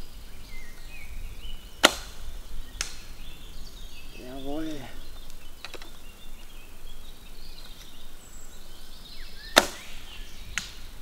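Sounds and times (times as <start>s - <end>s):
arrows striking wood: 1.8s - 3.1s, 9.5s - 11.0s
bow string crack: 1.8s - 3.2s, 9.5s - 10.0s, 10.6s - 11.0s.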